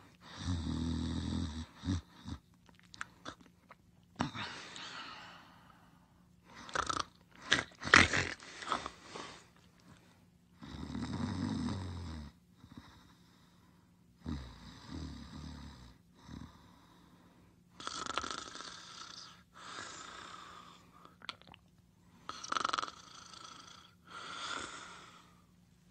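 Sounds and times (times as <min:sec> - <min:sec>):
low rattling snores: 0:00.4 - 0:02.4, 0:06.6 - 0:07.1, 0:10.6 - 0:12.8, 0:14.2 - 0:16.6, 0:17.8 - 0:20.4, 0:22.3 - 0:24.7.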